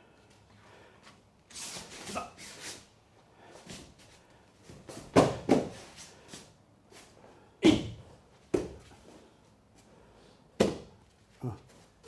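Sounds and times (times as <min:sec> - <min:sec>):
body thuds on mats: 0:04.9 - 0:05.8.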